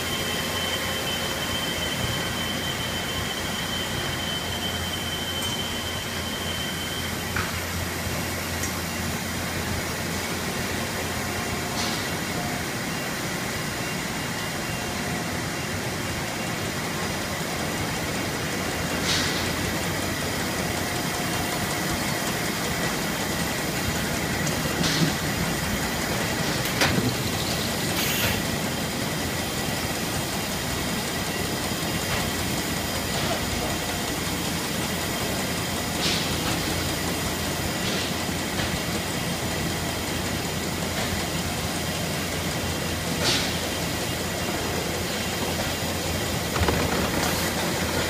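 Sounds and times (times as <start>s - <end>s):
roller conveyor running: 0.0s - 48.0s
cartons knocking on rollers: 46.4s - 48.0s.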